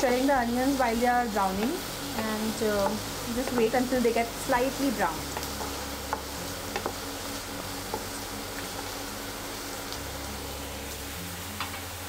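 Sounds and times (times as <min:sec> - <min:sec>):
onions sizzling in a pan: 0:00.0 - 0:12.0
spatula scraping and tapping pan: 0:02.7 - 0:03.8, 0:05.3 - 0:07.0.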